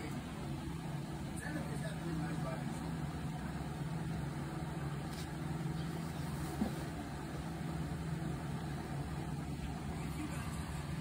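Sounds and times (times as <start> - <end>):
distant traffic hum: 0.0 - 11.0.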